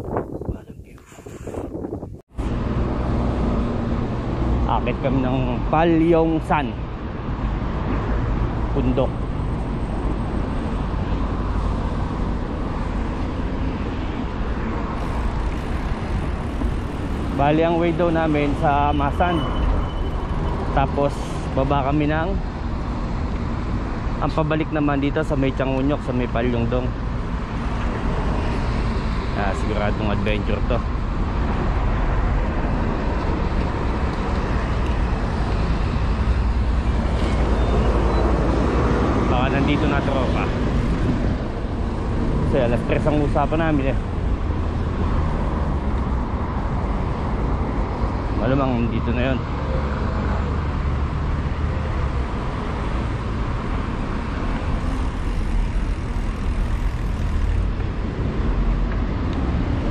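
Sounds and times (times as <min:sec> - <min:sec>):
wind noise on microphone: 0:00.0 - 0:04.4
moving vehicle rumble: 0:00.0 - 0:59.9.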